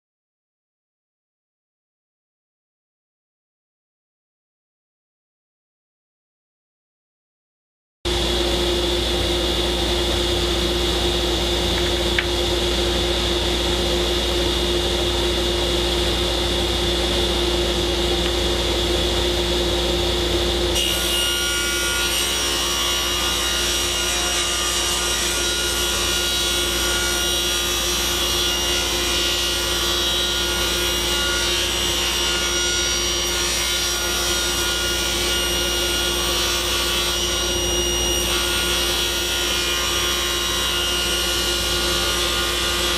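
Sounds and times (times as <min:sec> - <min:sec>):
dust collector running: 0:08.1 - 0:33.2.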